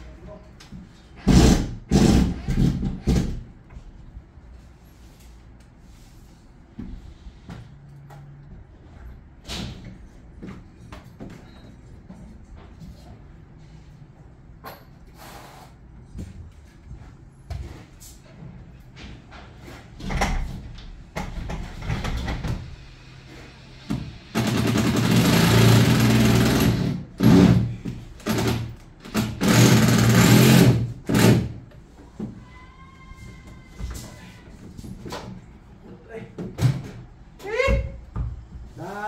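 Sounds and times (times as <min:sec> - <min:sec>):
power tool running: 0:24.3 - 0:27.4, 0:29.2 - 0:31.4.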